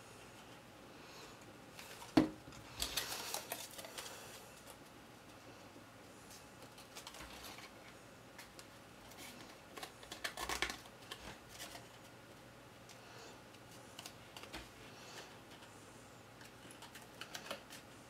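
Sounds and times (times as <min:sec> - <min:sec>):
crackly rustle of cardstock: 0:01.8 - 0:04.9, 0:06.3 - 0:15.7, 0:16.4 - 0:18.0.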